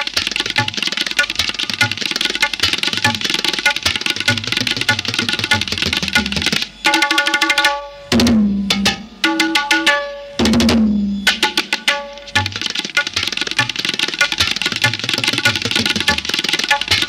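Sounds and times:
hand drum strokes: 0.0 - 6.7, 10.4 - 17.0.

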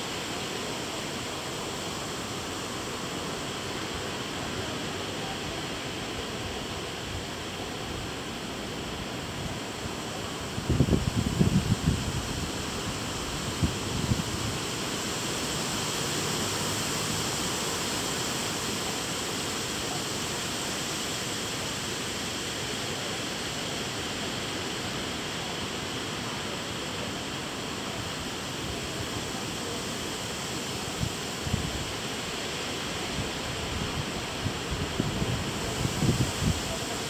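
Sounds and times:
wind in trees: 0.0 - 37.0
wind buffets on microphone: 10.6 - 12.5, 33.7 - 36.8.

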